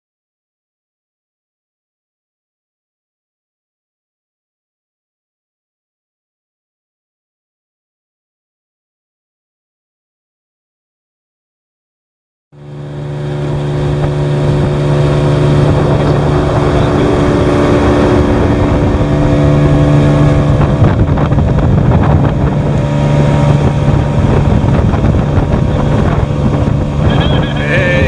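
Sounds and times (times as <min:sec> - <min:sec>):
outboard motor drone: 0:12.5 - 0:28.0
wind buffeting microphone: 0:12.7 - 0:28.0.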